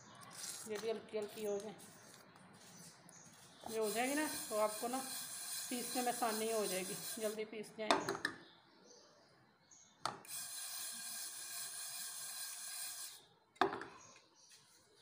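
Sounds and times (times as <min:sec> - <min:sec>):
dry seeds rustling in a pan: 0:00.0 - 0:07.4.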